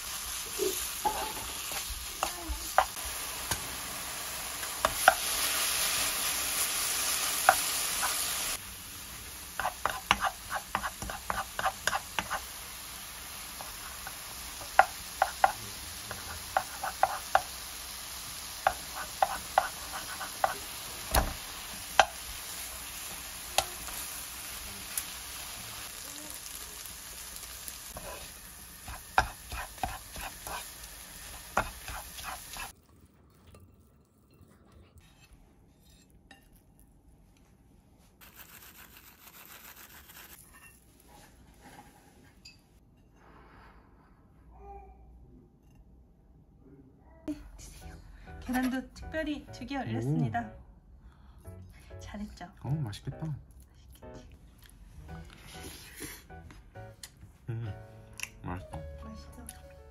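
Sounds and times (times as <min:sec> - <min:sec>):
food sizzling in frying pan: 0:00.0 - 0:32.8
spatula tapping and scraping pan: 0:09.6 - 0:12.5, 0:13.6 - 0:17.6, 0:18.6 - 0:21.3, 0:21.9 - 0:22.2, 0:28.8 - 0:30.7, 0:31.4 - 0:32.7.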